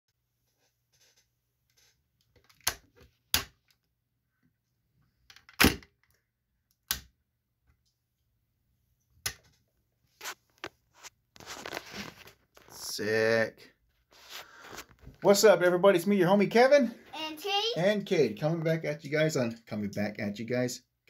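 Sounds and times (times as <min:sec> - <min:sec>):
handling rustle: 0:10.2 - 0:12.7.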